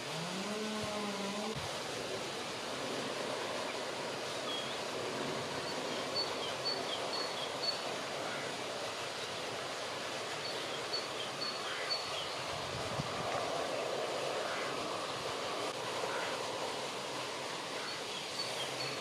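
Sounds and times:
water noise: 0.0s - 19.0s
wind: 0.0s - 19.0s
wading birds piping: 13.6s - 19.0s.

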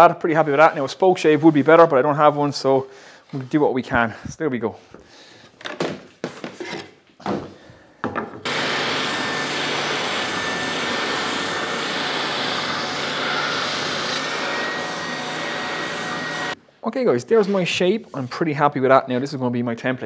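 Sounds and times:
hand saw rasping wood: 8.5s - 16.6s
spindle sander running: 8.5s - 16.6s.

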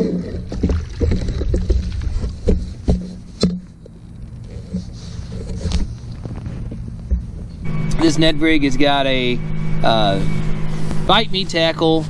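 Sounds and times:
water sloshing and splashing: 0.0s - 3.4s
steady low rumble: 3.7s - 12.0s.

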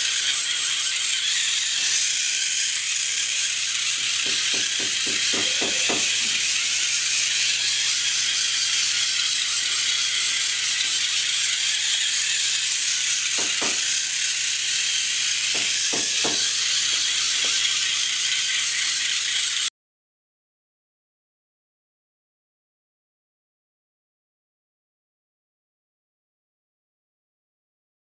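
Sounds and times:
small motors whirring: 0.0s - 19.7s.

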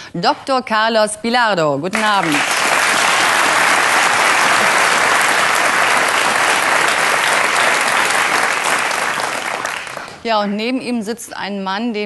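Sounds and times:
audience applauding: 1.9s - 10.2s.

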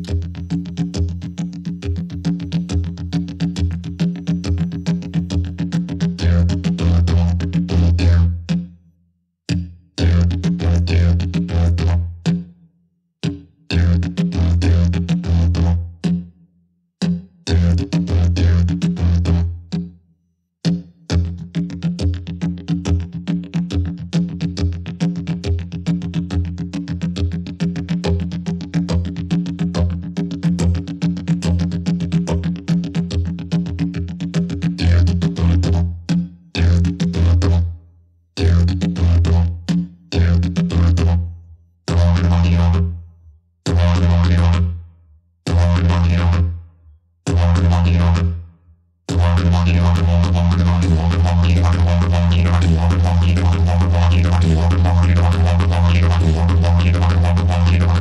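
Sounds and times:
didgeridoo drone: 0.0s - 8.5s, 10.0s - 12.1s, 13.7s - 15.9s, 17.5s - 19.6s, 26.5s - 36.0s, 36.6s - 37.7s, 38.4s - 43.0s, 43.7s - 44.8s, 45.5s - 46.6s, 47.3s - 48.4s, 49.1s - 58.0s.

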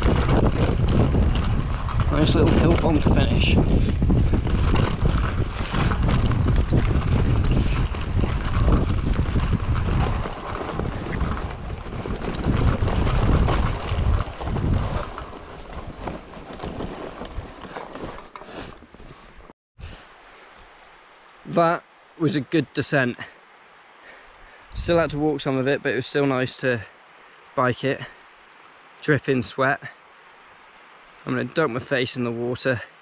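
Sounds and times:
wind buffeting microphone: 0.0s - 17.7s, 24.6s - 25.3s
mountain bike rattling over rough ground: 0.0s - 19.0s.

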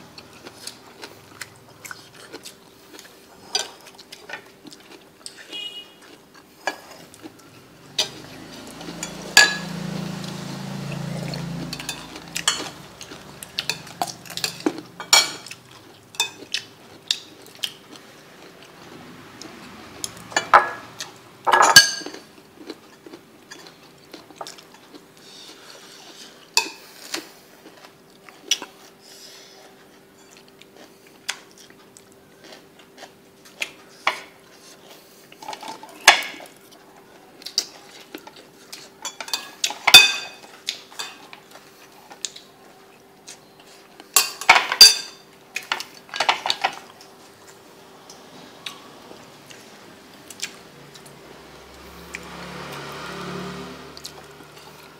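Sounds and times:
utensils clinking on plates: 8.0s - 10.0s, 11.0s - 17.3s, 20.1s - 22.3s, 39.0s - 41.7s, 44.1s - 46.9s.

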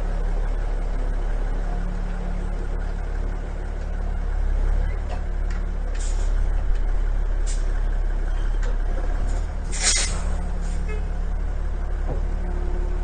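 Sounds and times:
truck engine humming: 0.0s - 13.0s
air hissing: 9.7s - 10.2s.

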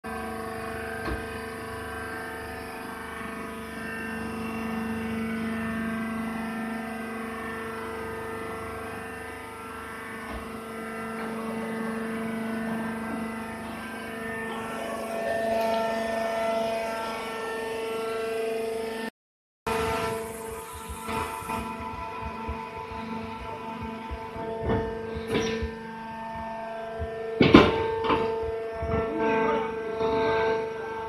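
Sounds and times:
baler mechanical hum: 0.1s - 19.1s, 19.7s - 31.0s
high-pitched whine: 0.1s - 19.1s, 19.7s - 31.0s.

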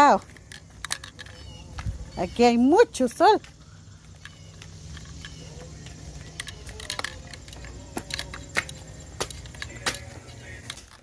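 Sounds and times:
steady low rumble: 0.2s - 11.0s.

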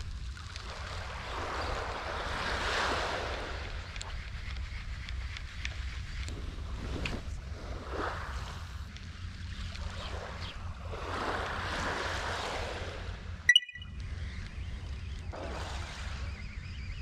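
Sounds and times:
sea wash: 0.0s - 4.9s, 6.1s - 13.7s, 14.8s - 17.0s
sharp click with ringing tone: 13.5s - 13.9s.

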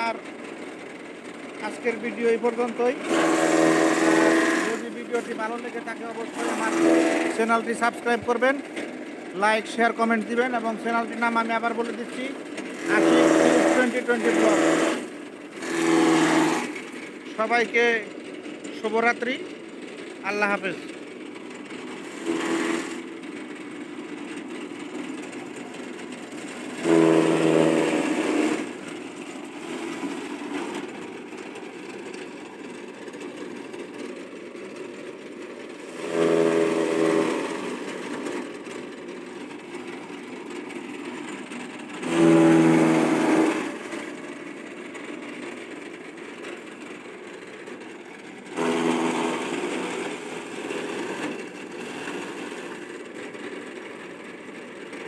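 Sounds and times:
chaff cutter running: 0.0s - 55.0s
buzzing chop of fodder cutting: 1.5s - 21.0s, 21.6s - 54.2s.

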